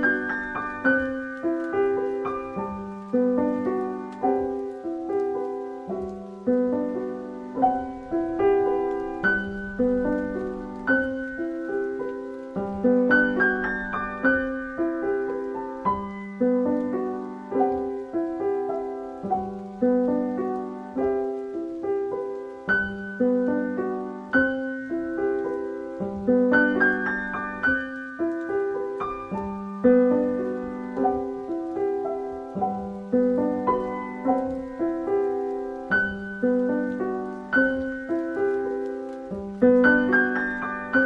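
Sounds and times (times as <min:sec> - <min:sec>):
gentle piano music: 0:00.0 - 0:41.0.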